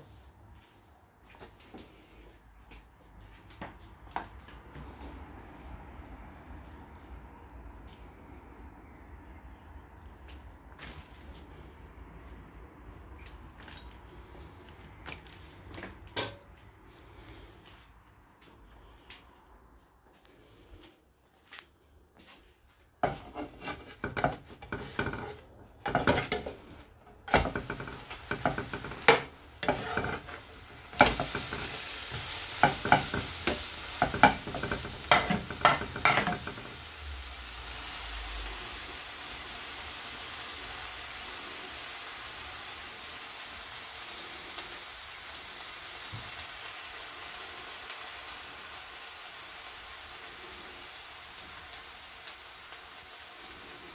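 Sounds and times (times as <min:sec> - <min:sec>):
metal spoon scraping a pan: 0:23.0 - 0:36.8
bread sizzling in a frying pan: 0:23.0 - 0:53.9.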